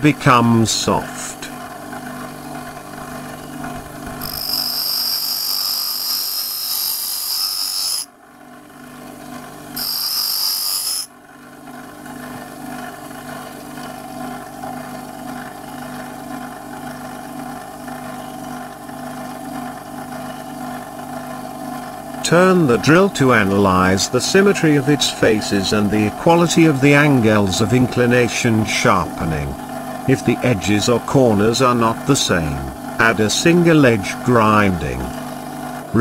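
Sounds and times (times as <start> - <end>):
grinding machine motor running: 0.9 - 36.0
high grinding hiss: 4.2 - 8.1, 9.8 - 11.1.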